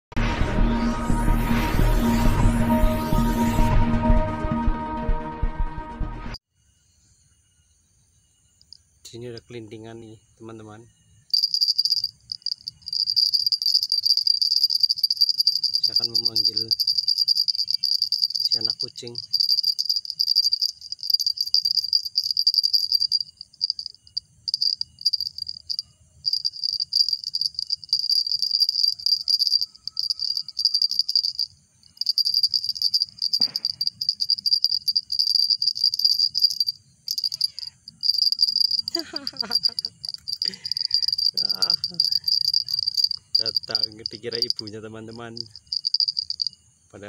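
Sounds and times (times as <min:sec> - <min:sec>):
small bell jingling: 0:11.4 - 0:46.6.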